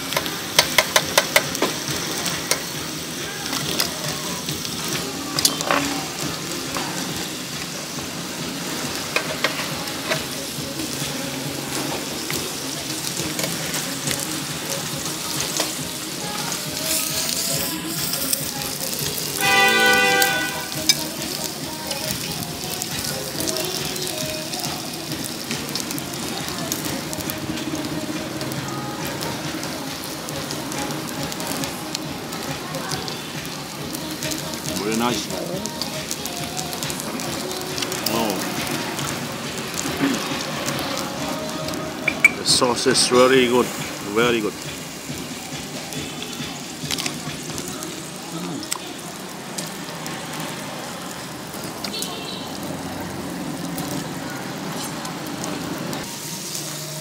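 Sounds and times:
food sizzling in hot oil: 0.0s - 57.0s
brief pitched tone: 42.0s - 42.5s.

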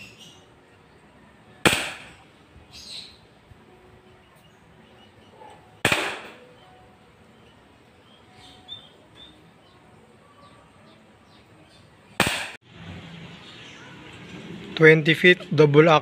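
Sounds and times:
airsoft revolver shots: 1.6s - 2.2s, 5.8s - 6.5s, 12.2s - 12.6s.

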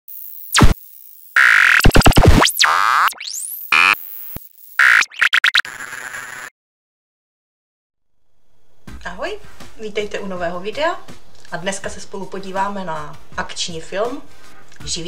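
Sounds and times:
hissy static: 0.1s - 6.5s
stuttering glitch effects: 0.1s - 6.5s.

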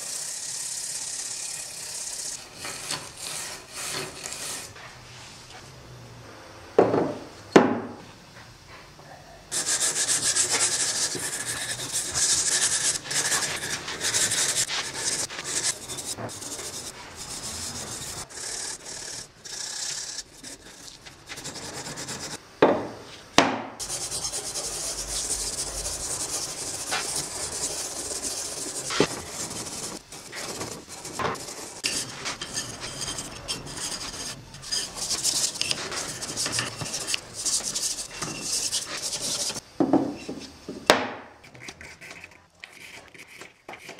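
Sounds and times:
wire brush scrubbing metal: 0.0s - 4.8s, 9.5s - 22.4s, 23.8s - 39.6s.

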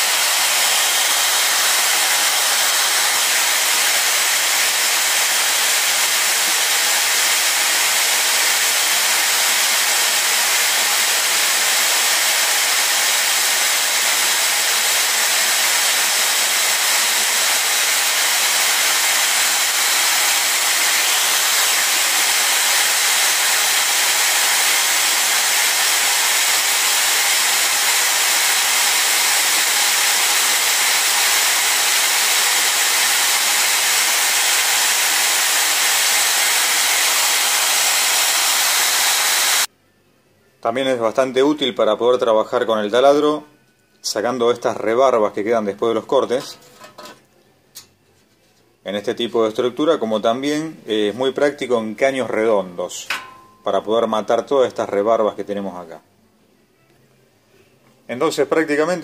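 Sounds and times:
electric drill whirring: 0.0s - 39.7s.

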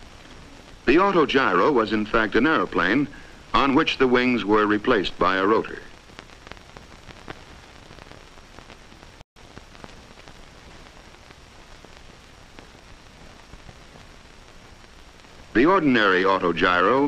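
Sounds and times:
film soundtrack hiss: 0.0s - 17.0s
clicks and crackles: 5.7s - 15.6s.

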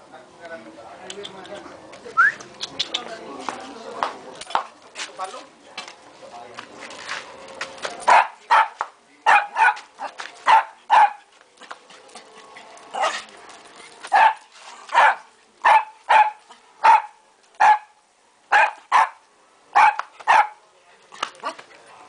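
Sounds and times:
small dog barking: 8.1s - 11.3s, 14.1s - 20.6s.

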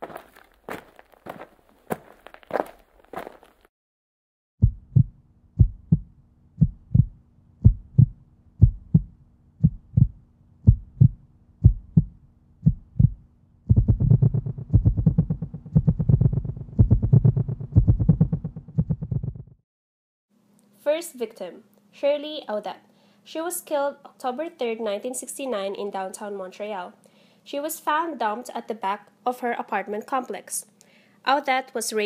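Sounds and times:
heartbeat thumps: 4.6s - 19.6s
steady low hum: 4.6s - 19.6s.

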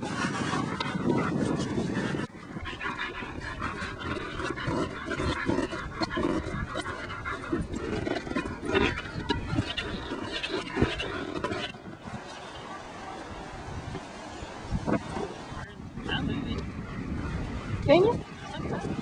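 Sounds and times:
dog panting hard: 0.2s - 11.5s.

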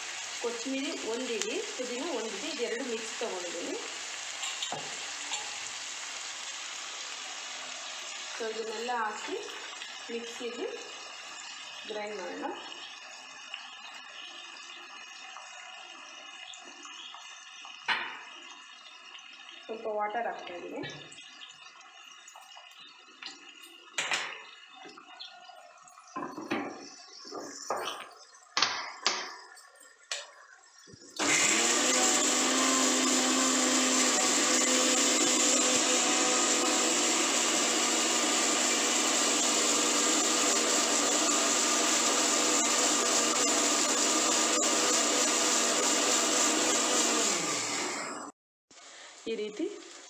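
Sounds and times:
mixer grinder motor whine: 31.2s - 48.4s.

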